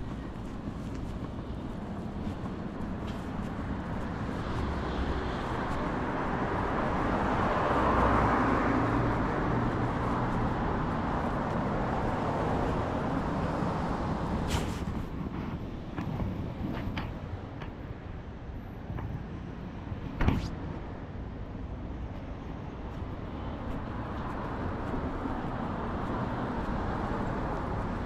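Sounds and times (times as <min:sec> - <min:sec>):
vehicle passing by: 0:03.2 - 0:14.9.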